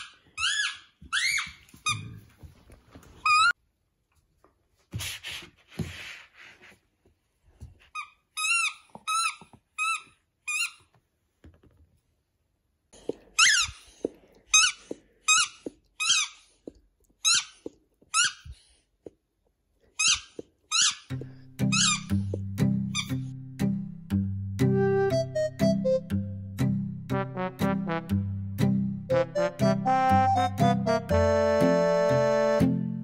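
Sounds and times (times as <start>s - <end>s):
rubber dog toy squeaking: 0.0s - 2.2s, 7.9s - 10.9s, 13.3s - 16.5s, 17.2s - 18.6s, 20.0s - 23.3s.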